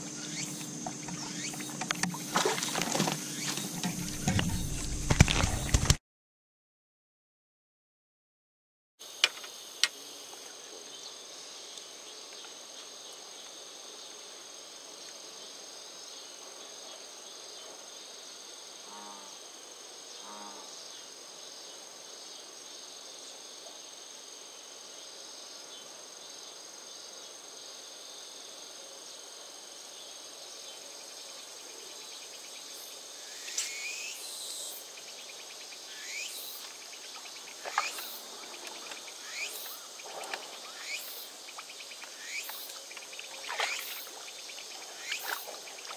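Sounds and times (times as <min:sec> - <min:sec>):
insect chorus: 0:00.0 - 0:06.0, 0:09.0 - 0:45.9
fish splashing in water: 0:02.1 - 0:05.9, 0:41.6 - 0:45.9.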